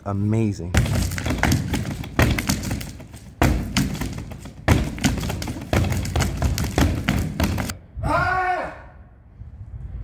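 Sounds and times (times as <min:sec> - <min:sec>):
punches thudding on punching bag: 0:00.8 - 0:07.7.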